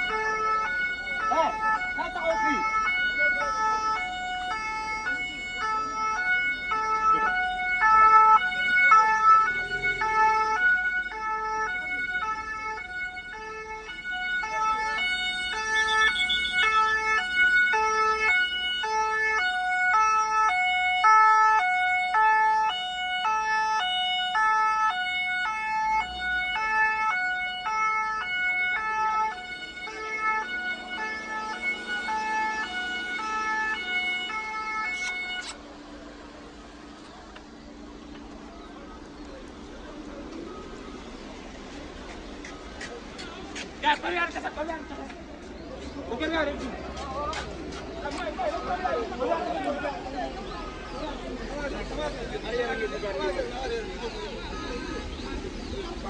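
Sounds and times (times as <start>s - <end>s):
two-tone siren: 0.0s - 35.6s, 48.0s - 56.0s.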